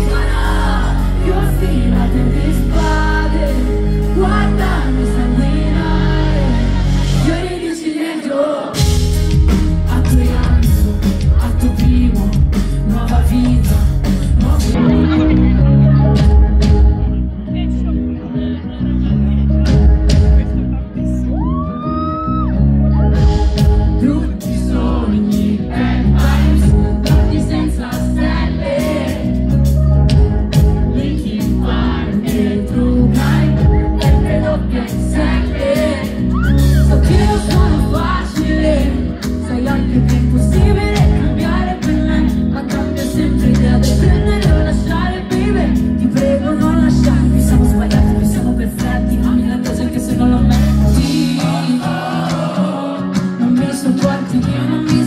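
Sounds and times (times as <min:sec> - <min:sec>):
person singing: 0:00.0 - 0:17.0, 0:21.6 - 0:55.0
bass and drum beat: 0:08.8 - 0:17.3, 0:19.6 - 0:55.0.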